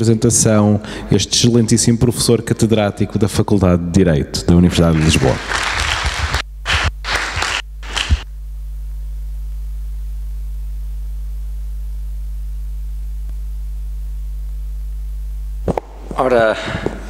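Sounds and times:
low electrical mains hum: 0.0 - 17.0.

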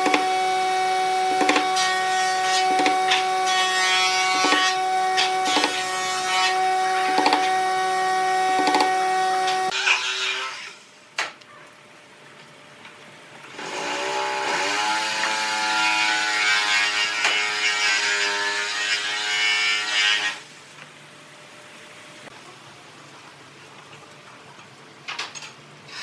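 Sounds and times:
power tool motor: 0.0 - 10.8, 13.5 - 15.6.

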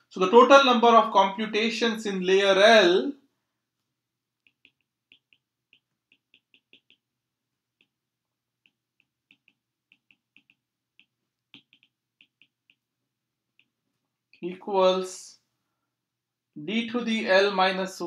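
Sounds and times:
stylus tapping on glass screen: 4.5 - 7.1, 8.6 - 12.9.

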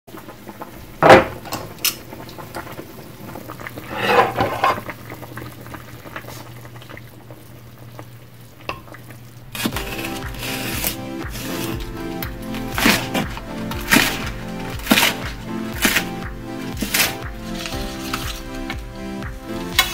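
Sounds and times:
soup bubbling: 0.1 - 19.9
music: 9.6 - 19.9.

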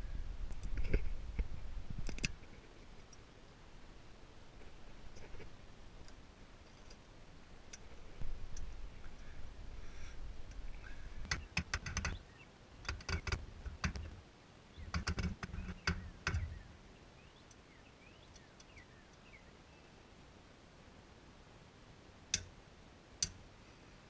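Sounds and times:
faint bird chirps: 9.0 - 12.6, 14.7 - 20.0.

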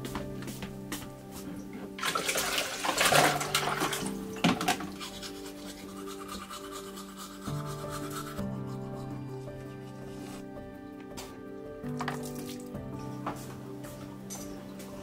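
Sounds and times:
background music: 0.0 - 15.0
water pouring from a ladle: 2.0 - 5.2.

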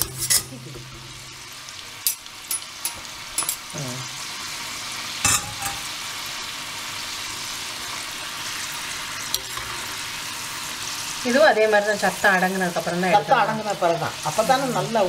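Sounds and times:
metal ladles clinking on pan: 0.0 - 1.2, 2.0 - 3.7, 5.2 - 5.9
lentils sizzling in hot oil: 0.0 - 15.0.

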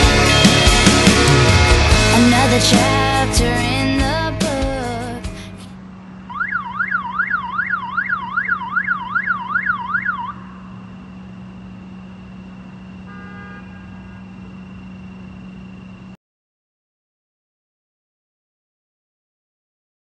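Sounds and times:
steady low hum: 3.4 - 16.2
electronic siren yelping: 6.2 - 11.4.

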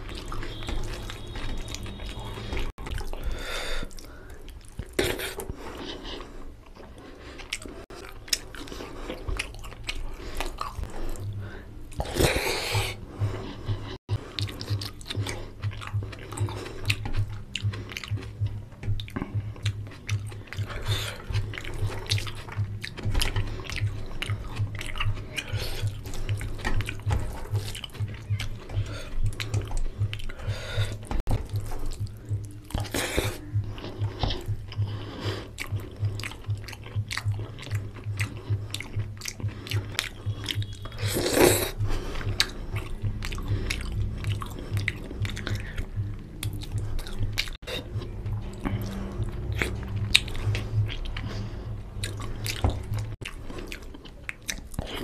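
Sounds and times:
person chewing and lip-smacking: 0.0 - 55.0
low hum: 7.6 - 54.4.

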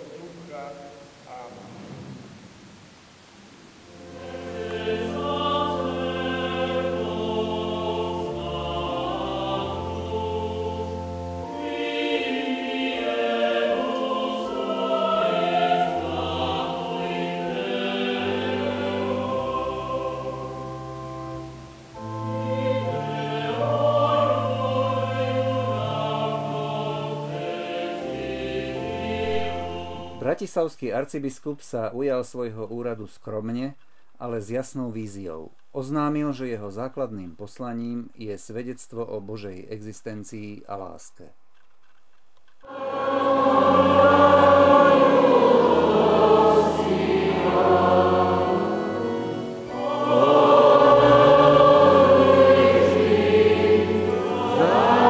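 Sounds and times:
mixed choir singing: 3.9 - 30.3, 42.6 - 55.0.

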